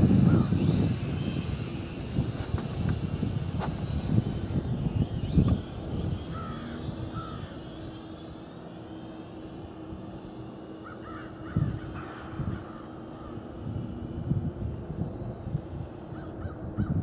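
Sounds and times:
faint steady hum: 0:00.0 - 0:17.0
wind buffeting microphone: 0:00.0 - 0:17.0
crows cawing: 0:06.3 - 0:07.6, 0:10.8 - 0:12.8.

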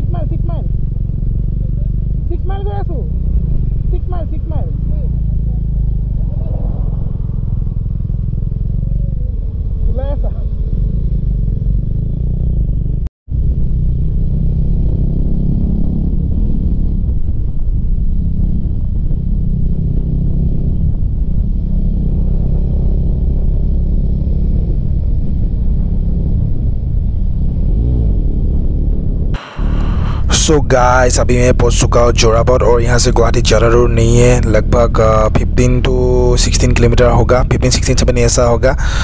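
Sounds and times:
motorcycle engine cruising: 0:00.0 - 0:39.0
wind rush on microphone: 0:06.0 - 0:10.9, 0:13.3 - 0:30.3.

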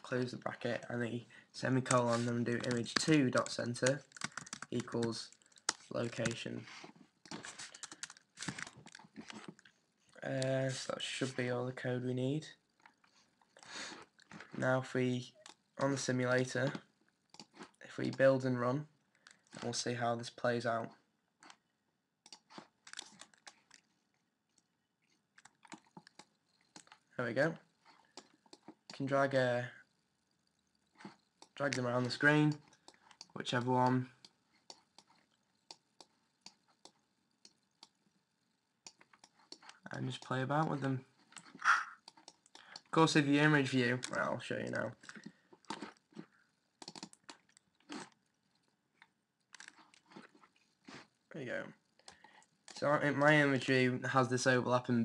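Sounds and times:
computer keyboard typing: 0:01.8 - 0:06.4, 0:07.3 - 0:09.5, 0:22.2 - 0:23.8, 0:25.4 - 0:27.0, 0:38.8 - 0:40.4, 0:46.7 - 0:47.8
keyboard and mouse clicks: 0:01.8 - 0:06.4, 0:07.2 - 0:09.8, 0:16.6 - 0:18.3, 0:22.2 - 0:23.9, 0:25.4 - 0:27.1, 0:27.9 - 0:29.1, 0:30.5 - 0:38.1, 0:38.8 - 0:40.4, 0:41.3 - 0:42.9, 0:43.9 - 0:50.3.

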